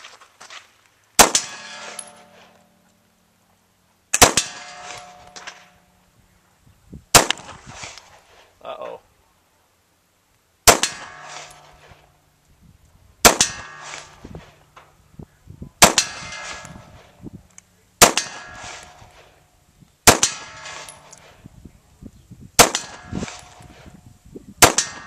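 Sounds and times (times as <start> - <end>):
pistol shots: 1.2 - 2.4, 4.1 - 5.7, 7.1 - 7.6, 10.6 - 11.8, 13.2 - 14.2, 15.8 - 17.0, 18.0 - 19.2, 20.0 - 21.2, 22.6 - 23.7, 24.6 - 25.0
steel target plate clanging: 1.3 - 2.8, 4.3 - 6.0, 10.8 - 12.1, 13.4 - 15.0, 15.9 - 17.2, 18.2 - 19.4, 20.2 - 21.4.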